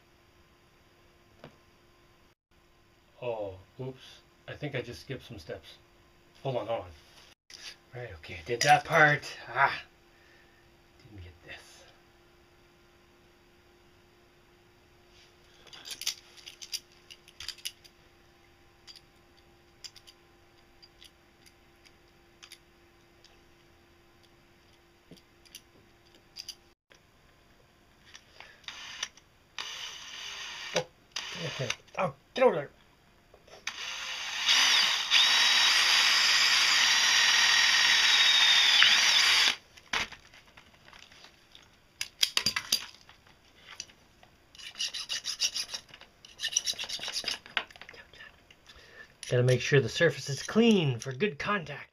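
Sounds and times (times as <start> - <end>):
cordless drill boring metal: 28.6 - 31.8, 33.6 - 39.6
file rasping on metal: 44.6 - 47.4.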